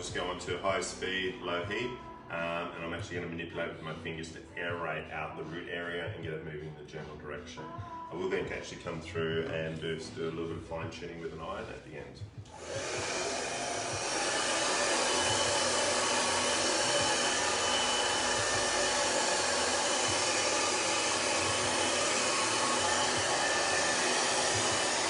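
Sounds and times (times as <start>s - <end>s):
hair dryer running: 12.4s - 25.0s.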